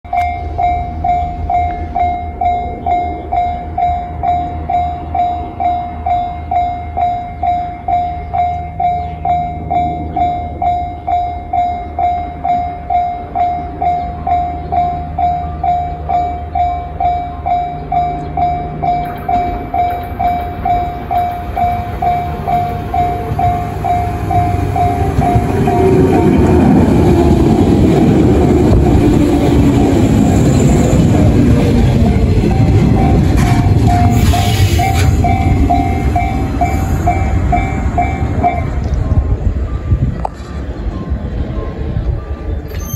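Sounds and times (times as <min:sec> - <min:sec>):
level crossing bell ringing: 0:00.1 - 0:27.2, 0:32.2 - 0:38.8
electric train passing: 0:00.1 - 0:42.9
train motor whine: 0:14.4 - 0:40.1.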